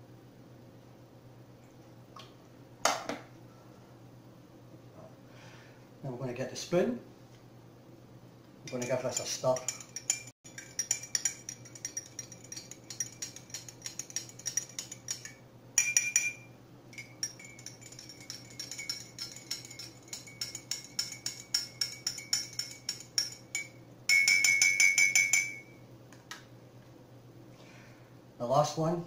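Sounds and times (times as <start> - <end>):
spoon clinking in glass mug: 8.7 - 25.7.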